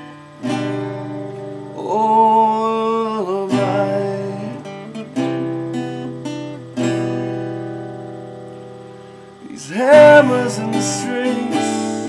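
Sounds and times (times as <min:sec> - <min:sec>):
acoustic guitar strummed chords: 0:00.0 - 0:12.0.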